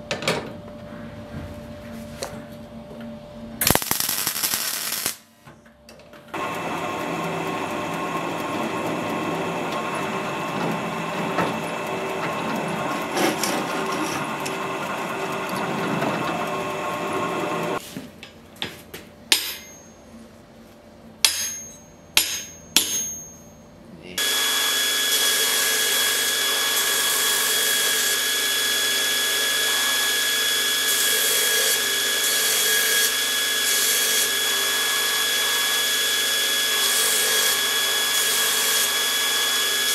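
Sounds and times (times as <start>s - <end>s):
arc welding hiss: 3.6s - 5.3s
belt grinder whining: 6.4s - 17.8s, 24.2s - 39.9s
hammer blows on steel anvil: 21.2s - 23.6s.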